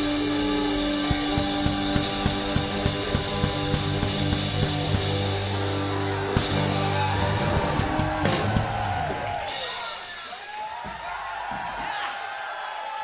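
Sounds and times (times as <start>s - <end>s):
electric guitar chords: 0.0s - 9.2s
steady drumbeat: 0.0s - 11.7s.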